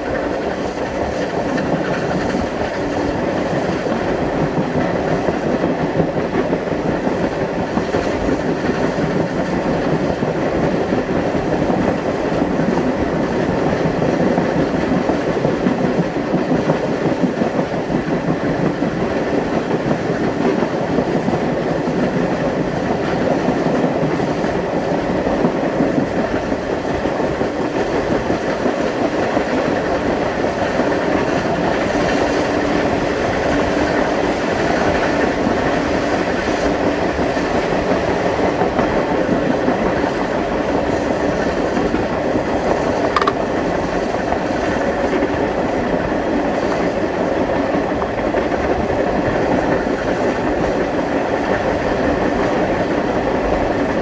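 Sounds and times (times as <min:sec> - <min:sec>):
clickety-clack of rail joints: 0:00.0 - 0:54.0
train wheels rolling on rail: 0:00.0 - 0:54.0.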